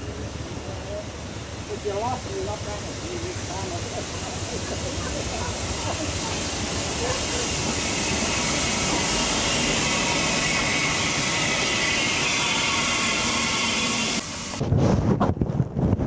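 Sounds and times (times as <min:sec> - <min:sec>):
steam locomotive hissing: 0:00.0 - 0:14.6
wind buffeting microphone: 0:14.4 - 0:16.0.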